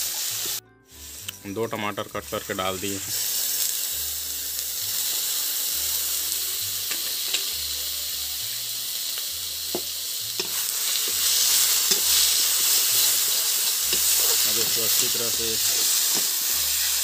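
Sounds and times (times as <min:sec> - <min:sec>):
tomatoes sizzling in hot oil: 0:00.0 - 0:17.0.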